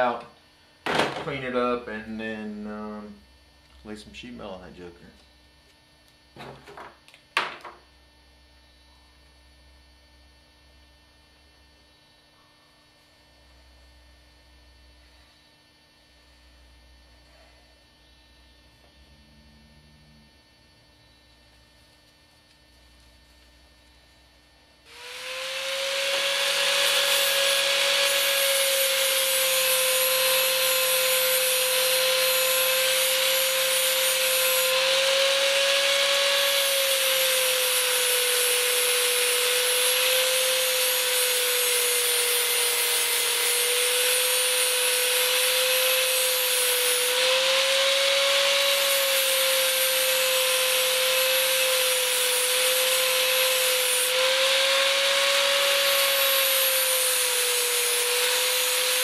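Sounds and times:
power tool cutting metal: 24.9 - 59.0.

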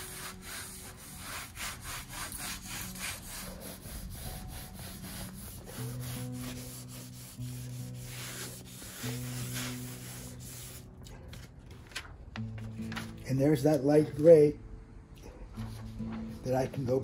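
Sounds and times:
pad rubbing over paper: 0.0 - 10.8.

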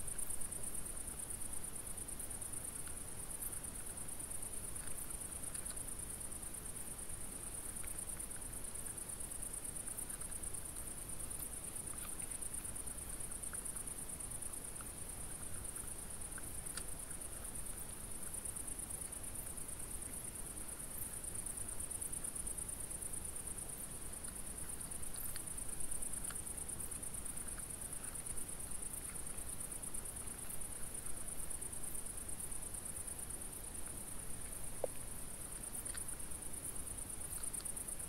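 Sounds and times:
insects chirring: 0.0 - 38.0
faint clicks: 4.7 - 5.9, 11.2 - 18.4.

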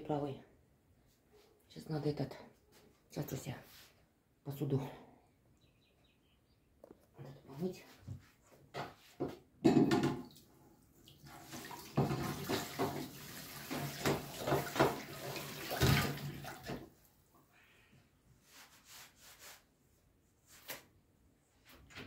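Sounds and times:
dishes clinking: 9.6 - 10.2
tap running into sink: 11.8 - 15.2.

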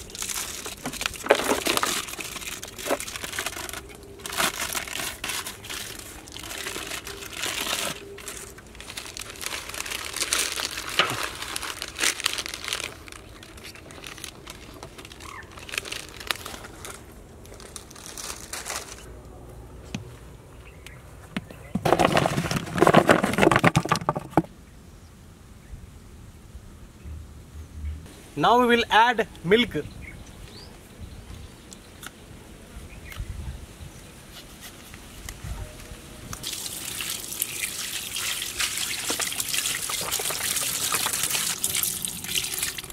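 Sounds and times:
foil wrappers crinkling: 0.0 - 19.1, 36.4 - 42.9.

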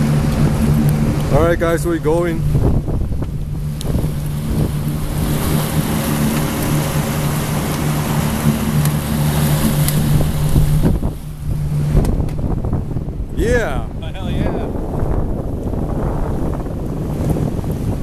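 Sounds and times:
motorboat engine humming: 0.0 - 18.0
water rushing from wake: 0.0 - 18.0
wind: 0.0 - 18.0.

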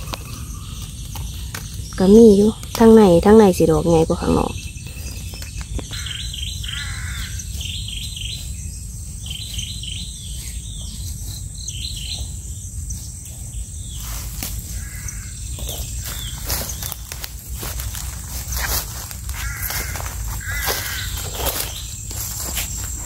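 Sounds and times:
bird chirping: 0.0 - 23.0
high insect drone: 0.0 - 23.0
rustling footsteps: 14.0 - 23.0.

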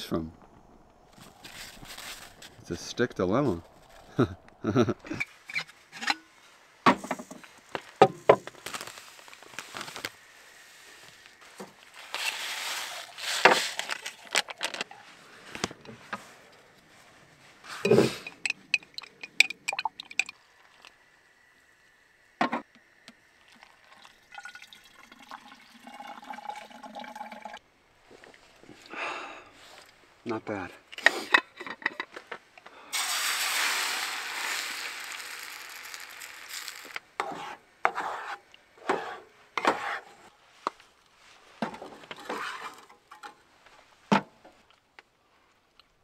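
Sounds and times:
utensils clicking and knocking: 17.8 - 20.3
liquid pouring: 18.2 - 20.9, 23.4 - 27.6, 33.0 - 37.0.

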